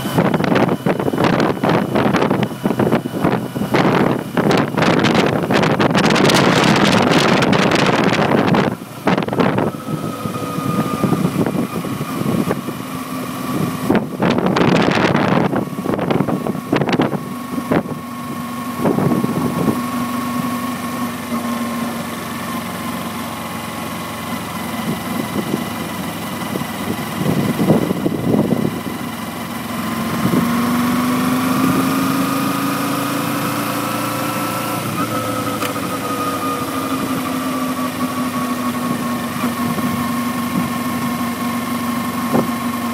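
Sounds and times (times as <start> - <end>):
wind buffeting microphone: 0.1 - 12.8, 13.5 - 18.0, 18.8 - 20.0, 26.5 - 28.9.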